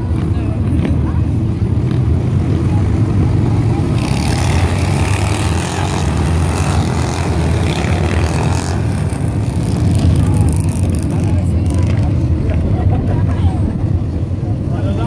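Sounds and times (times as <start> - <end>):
motorcycles riding past: 0.0 - 15.0
steady low rumble: 6.0 - 15.0.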